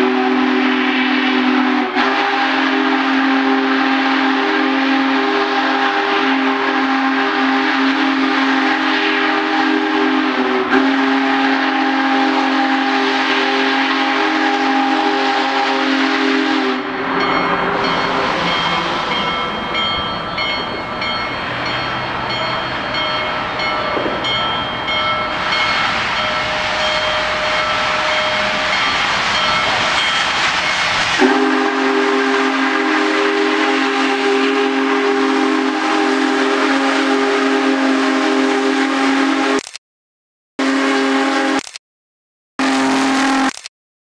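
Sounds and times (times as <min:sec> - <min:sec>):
steam locomotive rumble and hiss: 0:00.0 - 0:39.6
steam whistle chord: 0:00.0 - 0:39.6, 0:40.6 - 0:41.7, 0:42.6 - 0:43.6.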